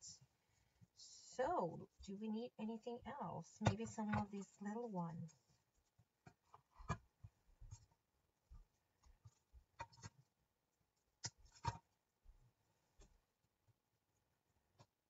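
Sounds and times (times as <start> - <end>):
small objects clicking and tapping: 6.2 - 10.3, 11.2 - 12.0.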